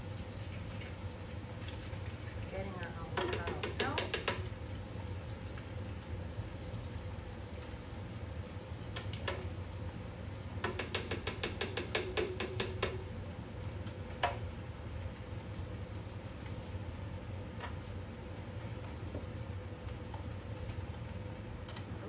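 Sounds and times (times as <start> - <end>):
spoon knocking blender jar: 3.2 - 4.5, 10.6 - 13.0.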